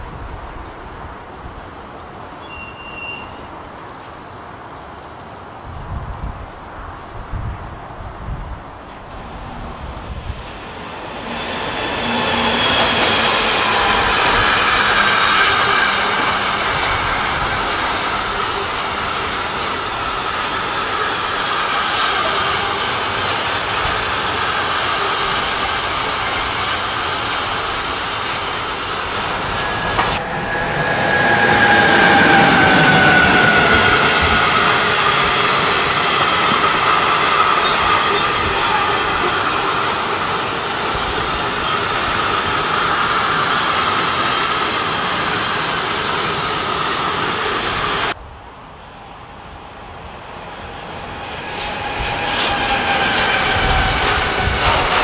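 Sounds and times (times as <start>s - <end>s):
train wheels rumbling on rail: 0.0s - 48.2s, 48.9s - 55.0s.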